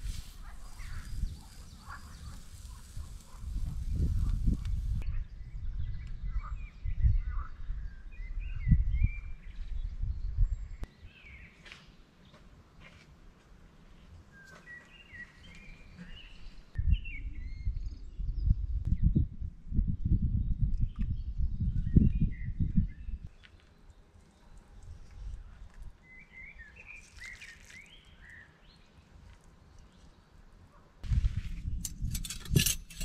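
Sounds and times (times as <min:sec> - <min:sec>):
small birds chirping: 0:00.0 - 0:05.1.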